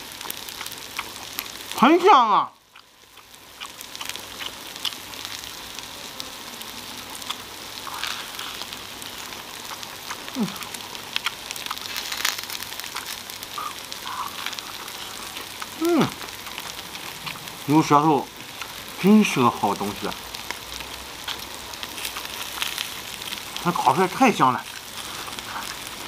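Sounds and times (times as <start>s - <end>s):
meat sizzling on grill pan: 0.0s - 26.0s
chewing: 0.2s - 1.7s, 2.7s - 5.6s, 7.1s - 18.9s, 20.4s - 23.9s, 24.6s - 26.0s
person humming mm: 10.3s - 10.8s, 13.6s - 16.2s.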